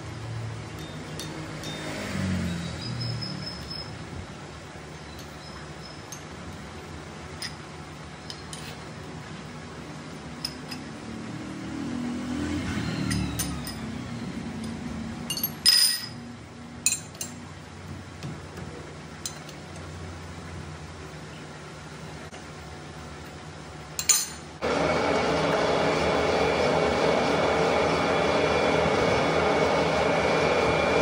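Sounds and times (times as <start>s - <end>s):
metallic clinks: 0.7s - 2.1s, 14.6s - 16.2s
lathe humming: 24.6s - 31.0s.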